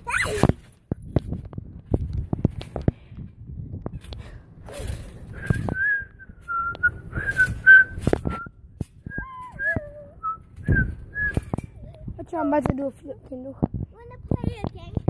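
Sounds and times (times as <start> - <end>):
trampoline thumps and rustles: 0.0 - 15.0
person whistling a tune: 5.3 - 11.6.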